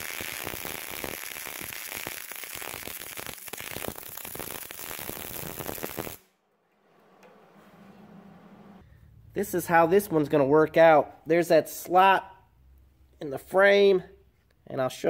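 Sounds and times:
welding arc crackling: 0.0 - 6.3.

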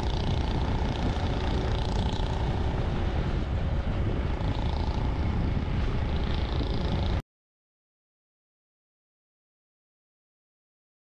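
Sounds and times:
motorcycle engine running: 0.0 - 7.2
wind buffeting microphone: 0.0 - 7.2.

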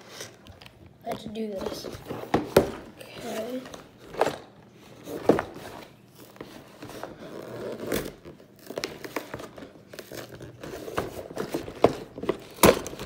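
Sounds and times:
cardboard box scraping and crinkling: 3.2 - 12.5.

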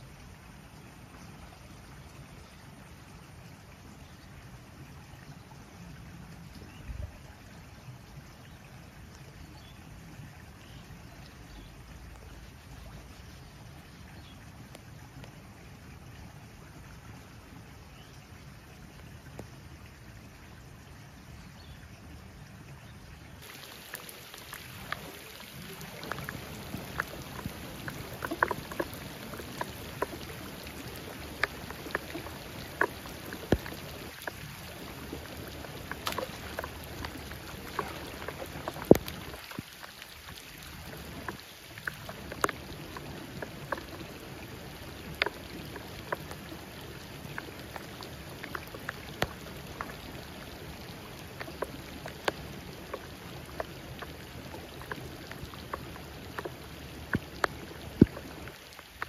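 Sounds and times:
running canal water: 0.0 - 59.0
raindrops ticking close by: 10.6 - 13.5, 23.4 - 59.0
rain hiss: 21.2 - 59.0.

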